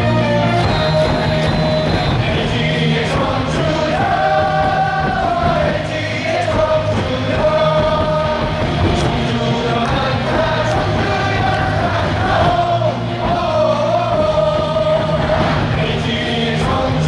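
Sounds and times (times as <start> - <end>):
amplified music: 0.0 - 17.0
crowd singing and chanting: 0.0 - 17.0.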